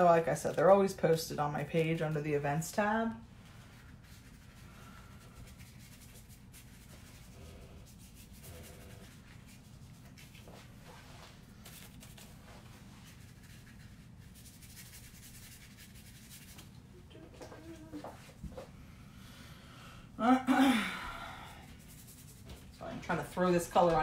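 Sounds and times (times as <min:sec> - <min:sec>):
low room hum: 0:00.0 - 0:24.0
paintbrush strokes on paper: 0:03.3 - 0:16.8, 0:21.6 - 0:24.0.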